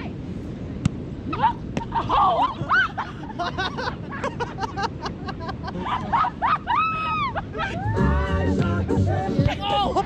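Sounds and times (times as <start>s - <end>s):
group of people laughing: 2.0s - 8.0s.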